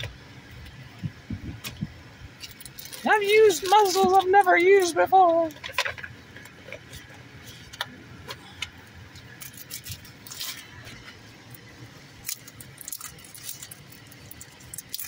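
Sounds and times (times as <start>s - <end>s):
foil wrapper crinkling: 2.4s - 7.6s, 9.2s - 15.0s.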